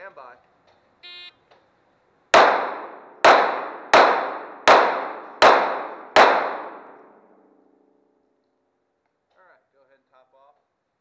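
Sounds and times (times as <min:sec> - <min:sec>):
pistol shots echoing indoors: 0:02.4 - 0:07.5.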